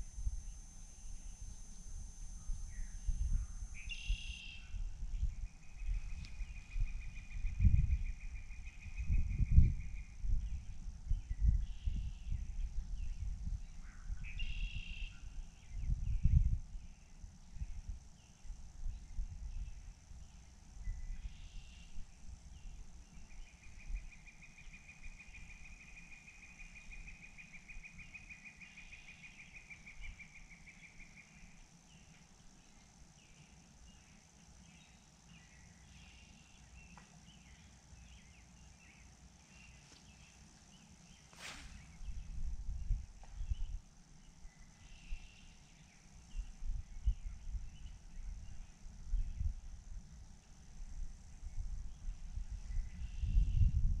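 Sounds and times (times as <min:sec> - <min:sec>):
short chirping calls: 0:00.0 - 0:04.9, 0:38.9 - 0:42.4.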